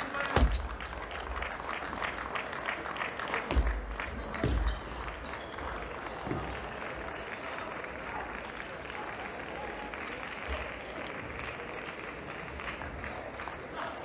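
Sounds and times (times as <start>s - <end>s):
people clapping: 0.0s - 14.0s
footsteps thudding on floor: 3.5s - 4.9s.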